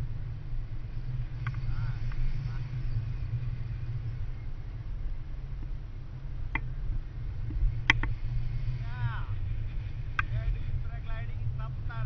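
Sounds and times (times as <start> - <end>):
wind buffeting microphone: 0.0 - 12.0
sharp clicks: 7.8 - 8.1.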